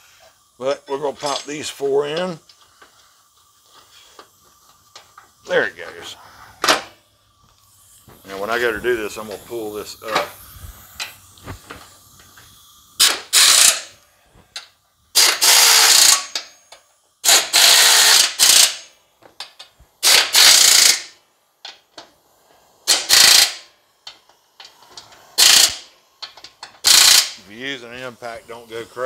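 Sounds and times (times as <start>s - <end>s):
pneumatic impact wrench hammering: 6.4s - 7.0s, 10.0s - 27.4s.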